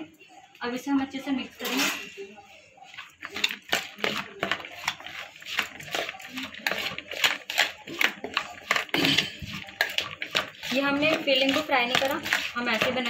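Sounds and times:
vegetables rustling and crunching: 0:02.8 - 0:13.0.

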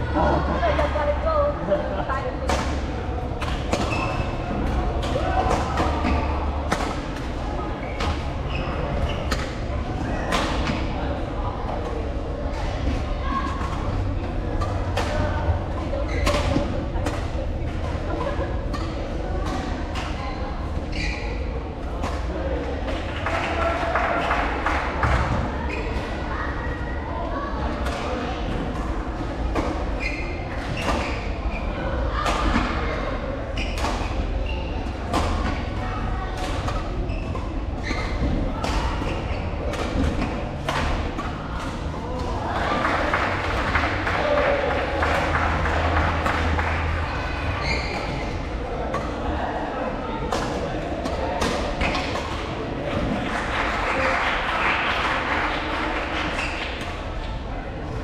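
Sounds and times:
shoes squeaking on court: 0:03.4 - 0:04.9, 0:07.8 - 0:09.6, 0:20.1 - 0:21.4, 0:36.4 - 0:41.9, 0:46.8 - 0:49.2
racket hitting shuttlecock: 0:35.1 - 0:42.4
applause in a hall: 0:42.6 - 0:47.0, 0:53.2 - 0:56.7.

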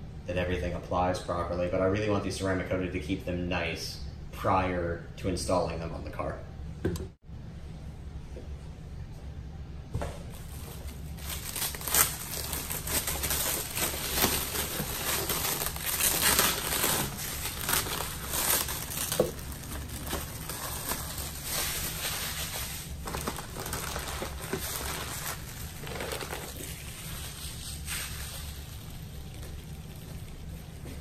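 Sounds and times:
packaging crinkling: 0:10.3 - 0:31.0.

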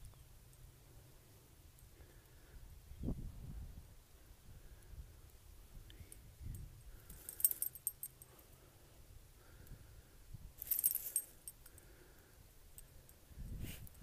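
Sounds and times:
dog collar tags jingling: 0:06.9 - 0:08.4, 0:10.6 - 0:11.7.

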